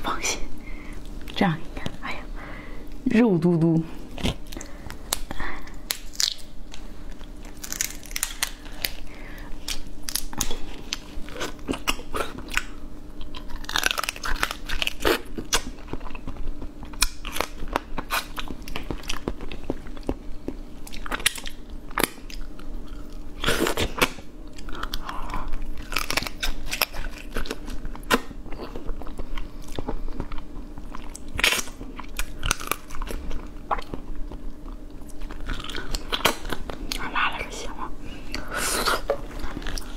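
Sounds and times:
faint steady hum: 0:00.0 - 0:39.9
person crunching and chewing crab: 0:04.0 - 0:37.5, 0:38.2 - 0:39.9.

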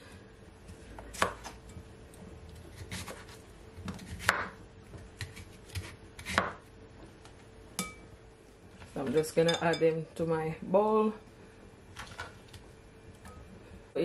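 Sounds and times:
knife chopping on wooden board: 0:01.1 - 0:01.5, 0:02.7 - 0:04.6, 0:05.2 - 0:06.6.

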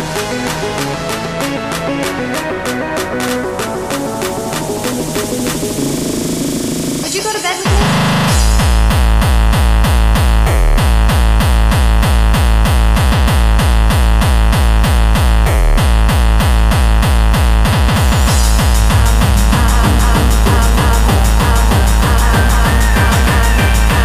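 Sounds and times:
synthesizers: 0:00.0 - 0:10.9, 0:14.8 - 0:24.0
electronic dance music: 0:00.0 - 0:24.0
heavy kick drum: 0:07.6 - 0:24.0.

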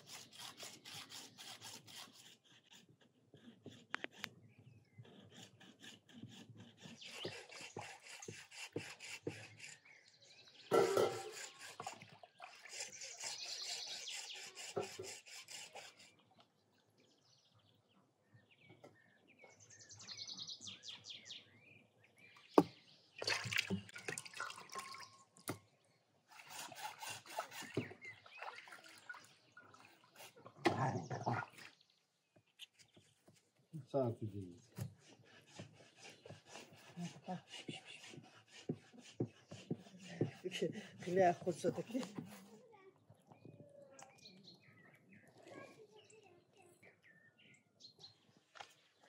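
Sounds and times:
hacksaw rasping through bone: 0:00.0 - 0:09.9, 0:10.7 - 0:16.2, 0:26.3 - 0:28.1, 0:34.6 - 0:42.4
water splashing and dripping: 0:23.2 - 0:25.6, 0:28.2 - 0:30.9.

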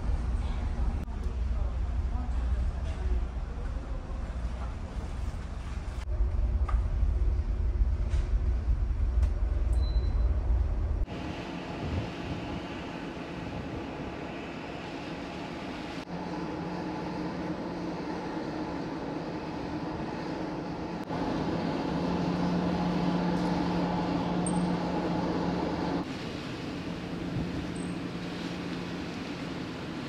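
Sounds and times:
ferry engine hum: 0:00.0 - 0:30.0
wind and sea hiss: 0:11.1 - 0:30.0.

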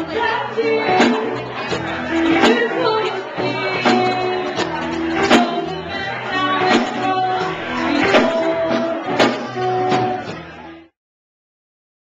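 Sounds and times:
drum kit beat: 0:00.0 - 0:10.8
electric guitars: 0:00.0 - 0:10.9.

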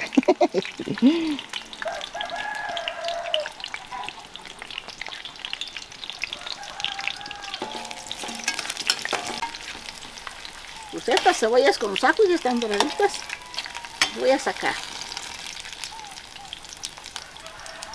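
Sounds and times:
garlic and onion frying: 0:00.0 - 0:17.9.

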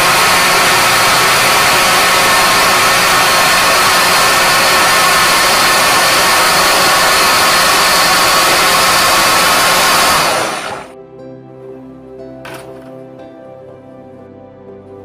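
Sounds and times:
blender running: 0:00.0 - 0:11.0.

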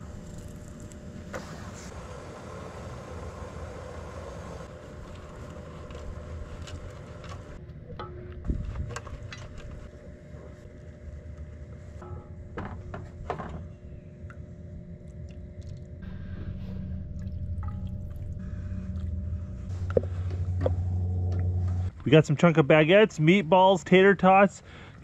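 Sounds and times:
steady low rumble: 0:14.4 - 0:23.5.

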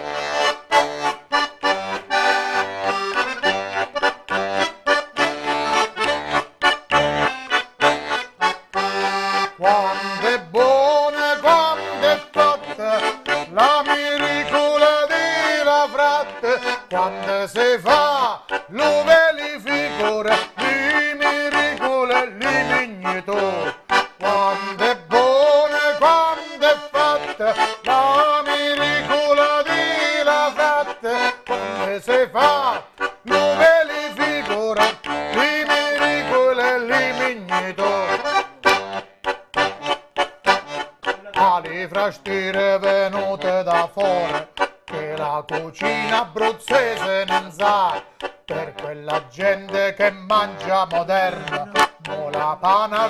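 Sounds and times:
button accordion playing folk tune: 0:00.0 - 0:53.0
man singing: 0:09.4 - 0:39.0, 0:41.0 - 0:53.0.

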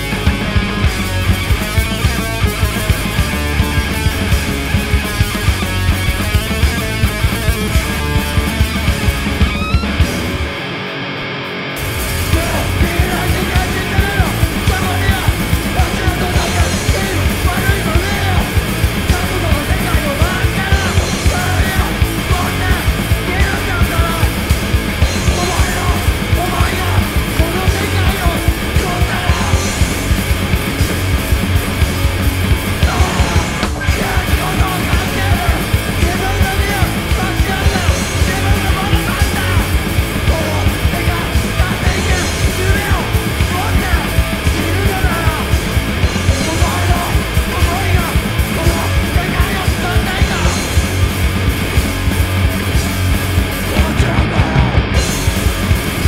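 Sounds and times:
drum kit fast beat: 0:00.0 - 0:10.6, 0:11.8 - 0:56.0
distorted electric guitar: 0:00.0 - 0:56.0
person singing: 0:12.2 - 0:30.4, 0:32.8 - 0:51.7, 0:53.6 - 0:55.0.

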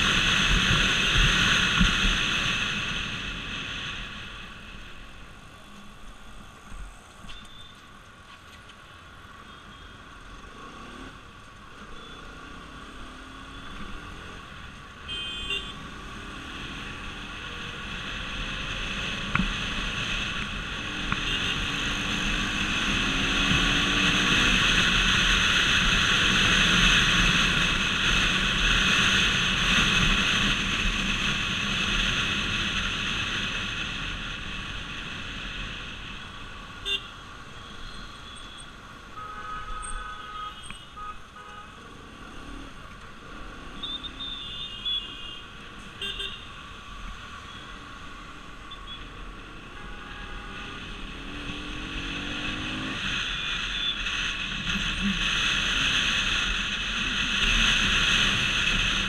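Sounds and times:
motorcycle engine accelerating: 0:50.6 - 0:53.4.

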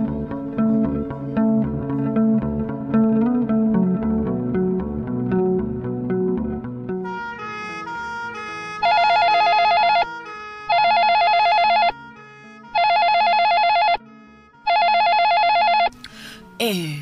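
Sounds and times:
telephone warbling rings: 0:08.8 - 0:10.1, 0:10.7 - 0:12.0, 0:12.7 - 0:14.0, 0:14.7 - 0:15.9.

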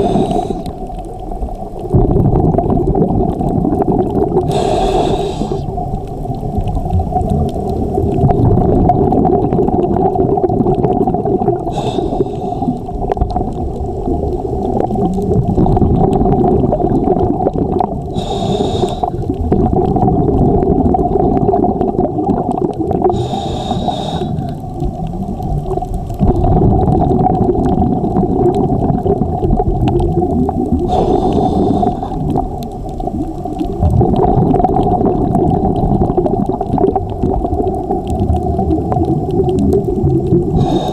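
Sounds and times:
diver breathing through regulator: 0:00.0 - 0:00.8, 0:04.4 - 0:05.7, 0:11.7 - 0:12.9, 0:18.1 - 0:19.2, 0:23.1 - 0:24.6, 0:30.9 - 0:32.4, 0:40.5 - 0:40.9
bubbles hissing: 0:00.0 - 0:40.9
low underwater rumble and hum: 0:00.0 - 0:40.9.

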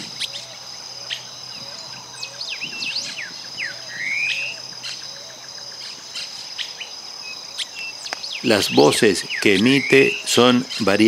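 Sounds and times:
high insect drone: 0:00.0 - 0:11.0
bird calling high squeaky notes: 0:07.6 - 0:11.0.

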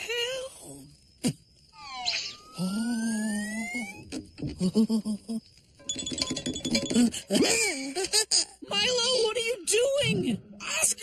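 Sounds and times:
cartoon downward zip: 0:01.8 - 0:04.0.

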